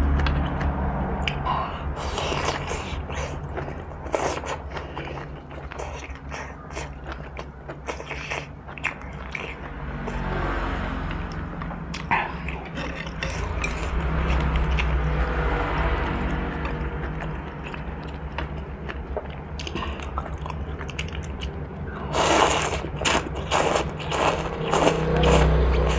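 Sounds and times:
chewing and wet mouth sounds: 0.0 - 25.9
steady low hum: 11.1 - 25.9.

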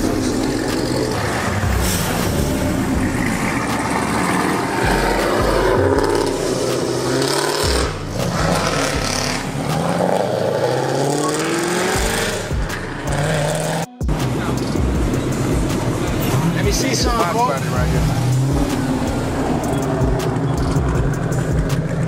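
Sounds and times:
car exhaust accelerating hard: 0.0 - 22.0.

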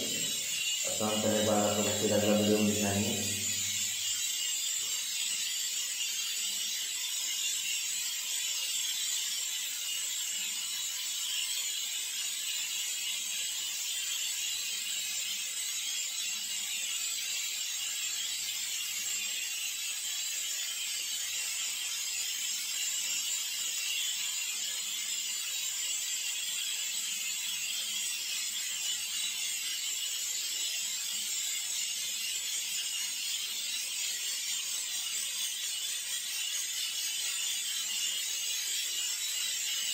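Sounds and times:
steady high hiss: 0.0 - 4.0.

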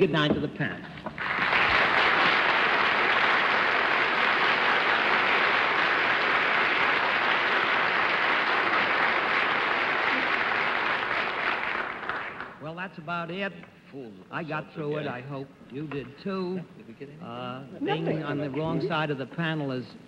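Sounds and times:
audience applauding: 1.1 - 12.6.

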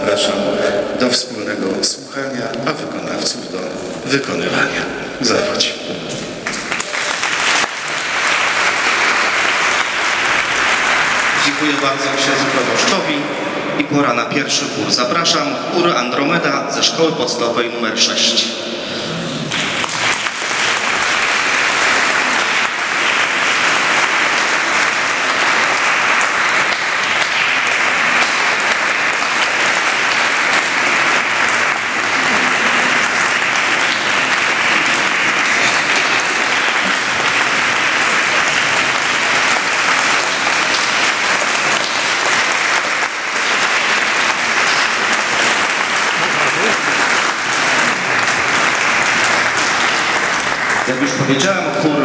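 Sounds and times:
audience applauding: 2.6 - 14.6, 18.8 - 52.0.

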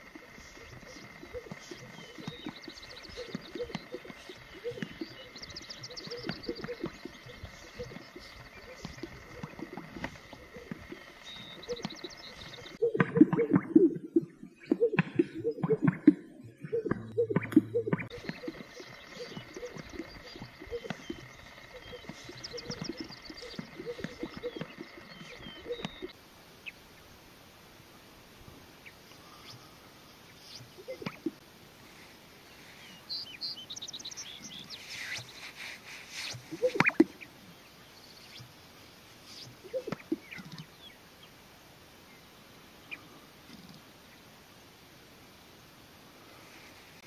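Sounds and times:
small birds chirping: 0.0 - 27.1, 28.8 - 41.4
grouse bubbling pops and gurgles: 0.2 - 26.2, 30.8 - 31.4, 36.3 - 37.2, 39.5 - 40.7.

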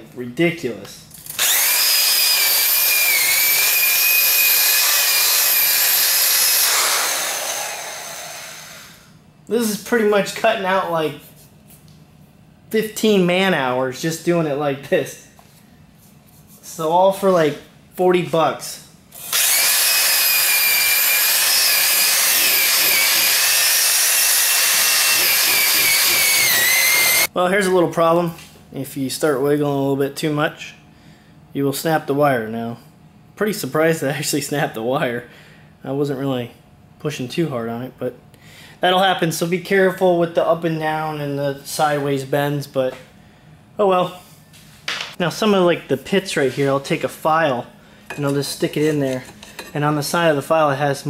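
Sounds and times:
electric drill whine: 1.3 - 9.1, 19.2 - 27.3.

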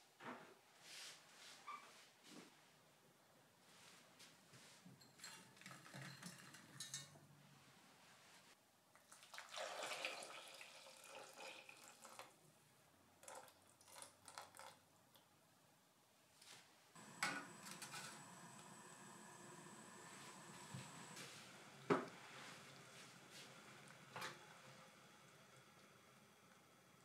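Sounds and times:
tea pouring and splashing: 5.2 - 7.1, 9.0 - 12.4, 13.2 - 14.8, 17.0 - 27.0.

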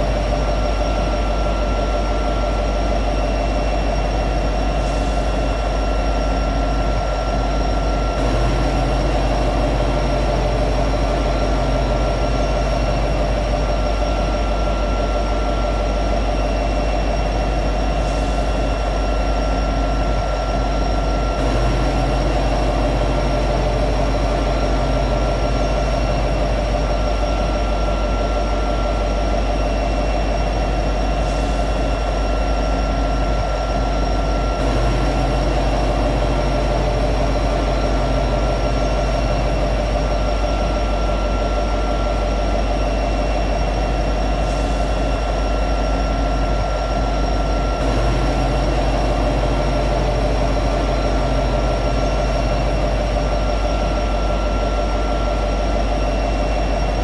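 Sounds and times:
diesel locomotive idling drone: 0.0 - 57.0.

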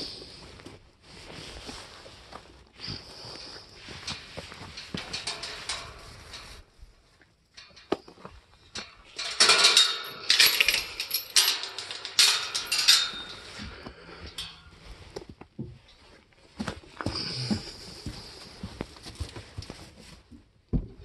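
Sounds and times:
metal wire gate rattling: 4.0 - 6.8, 7.5 - 14.8.

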